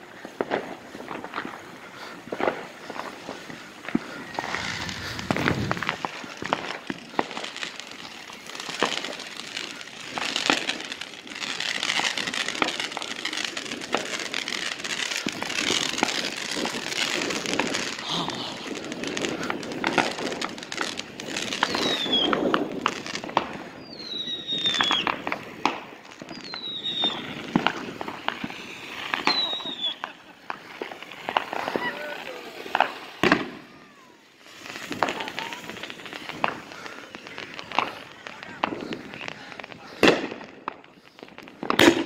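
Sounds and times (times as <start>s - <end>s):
firework pops and crackling: 0.0s - 42.0s
wind on microphone: 4.1s - 6.6s
falling whistles: 4.2s - 6.2s, 21.6s - 22.3s, 23.8s - 25.2s, 26.3s - 27.5s, 28.6s - 30.1s.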